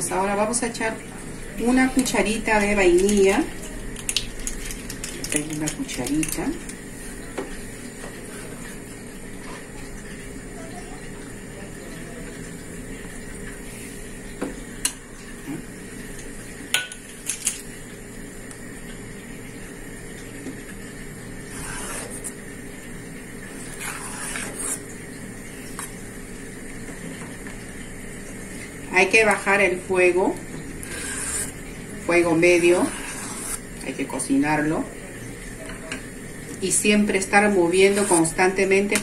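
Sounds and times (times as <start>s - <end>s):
spoon scraping pot: 23.6s - 24.8s, 37.8s - 39.0s
spoon stirring thick pudding: 23.6s - 24.8s.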